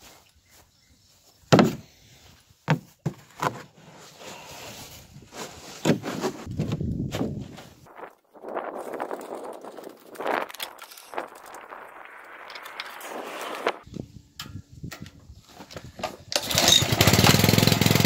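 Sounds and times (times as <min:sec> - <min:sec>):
plastic rustling and scraping: 0:03.0 - 0:13.8.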